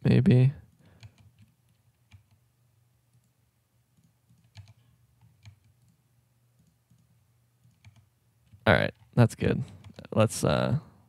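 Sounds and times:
keyboard and mouse clicks: 0.7s - 2.4s, 4.0s - 6.0s, 6.6s - 9.2s.

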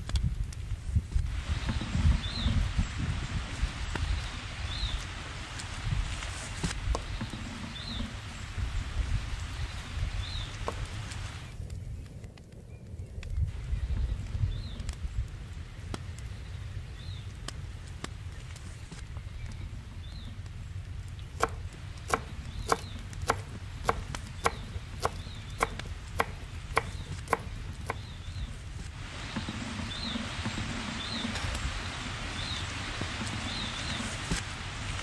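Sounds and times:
steady hiss: 0.0s - 11.7s, 20.4s - 35.0s
knife chopping on wooden board: 21.4s - 28.0s.

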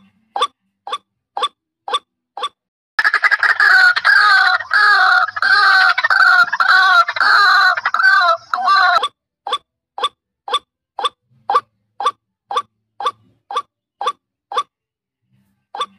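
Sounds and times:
waterhen calling: 3.0s - 9.0s.

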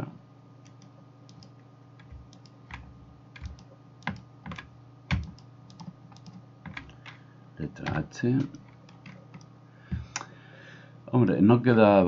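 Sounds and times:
faint steady hum: 0.0s - 12.0s
keyboard and mouse clicks: 0.6s - 7.2s, 7.8s - 9.5s.

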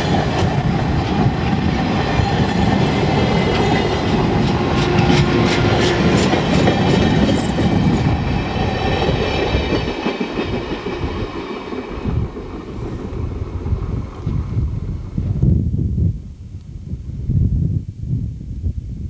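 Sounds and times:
train wheels clicking over rail joints: 0.0s - 13.2s.

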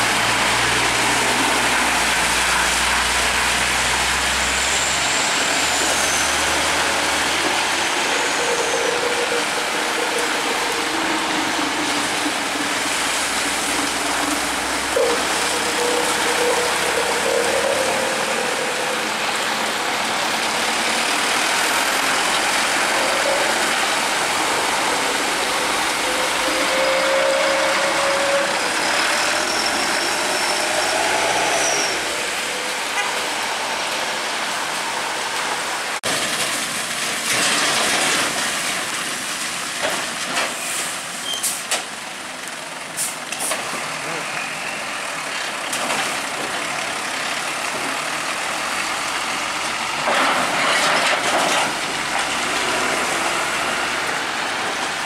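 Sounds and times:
tyres hissing through water: 0.0s - 36.0s
truck diesel engines: 0.0s - 55.0s.

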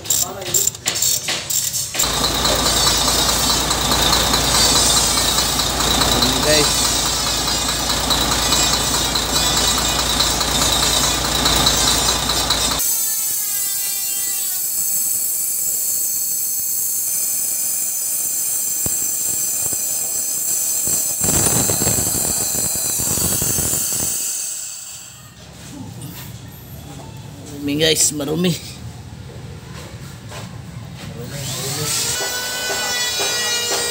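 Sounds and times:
truck engine running: 2.0s - 12.8s
high hiss with whistling tones: 15.4s - 25.3s.

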